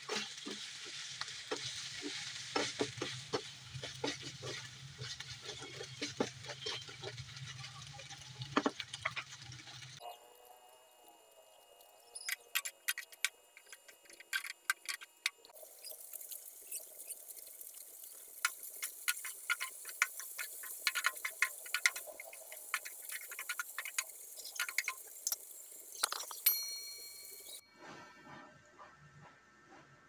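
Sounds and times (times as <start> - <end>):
spatula scraping frying pan: 0.0 - 8.2, 15.8 - 26.0
food sizzling: 0.0 - 27.6.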